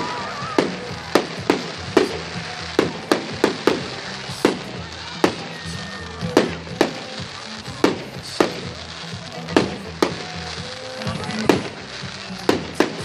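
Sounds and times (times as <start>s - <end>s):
fireworks bursting bangs: 0.0s - 13.0s
music playing: 0.0s - 13.0s.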